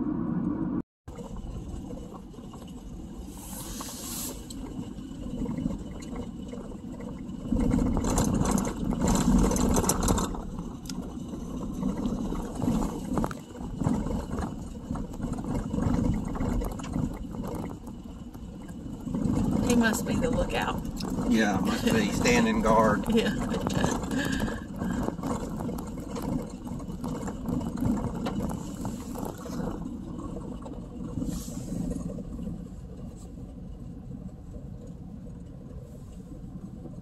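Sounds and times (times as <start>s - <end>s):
small crackles: 1.1s - 37.0s
tyres rumbling on gravel: 1.1s - 37.0s
wind hissing: 3.2s - 4.6s.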